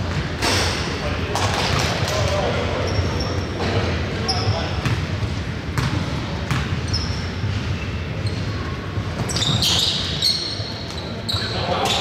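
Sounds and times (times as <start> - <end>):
basketball bouncing on court: 1.3 - 2.4, 4.5 - 7.6
sneaker squeaks: 1.6 - 12.0.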